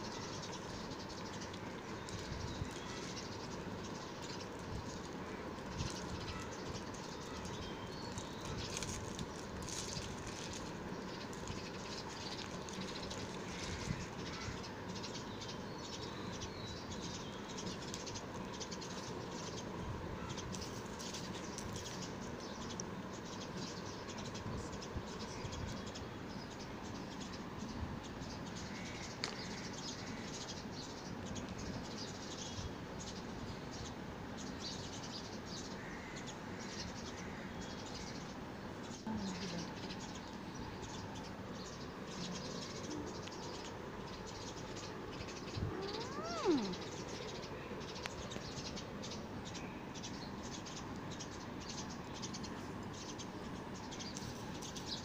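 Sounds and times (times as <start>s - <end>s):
faint bird chirps: 0.0s - 9.0s, 9.6s - 55.0s
steady background hiss: 0.0s - 55.0s
wrappers crinkling and rustling: 6.7s - 14.0s.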